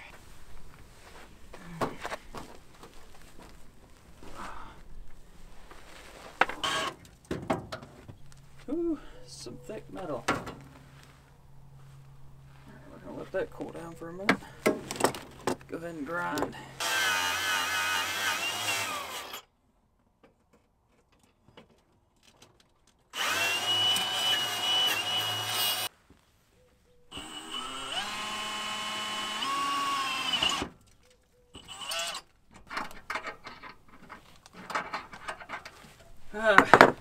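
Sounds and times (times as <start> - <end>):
power tool motor spinning up: 6.6 - 7.0, 16.8 - 19.4, 23.2 - 25.9, 27.1 - 30.6.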